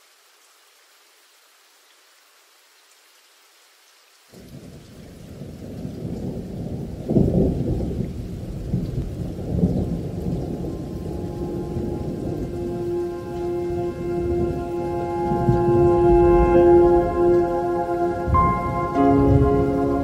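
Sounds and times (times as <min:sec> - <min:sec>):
faint hiss: 0:00.0 - 0:07.4
thunder rumbling: 0:04.4 - 0:20.0.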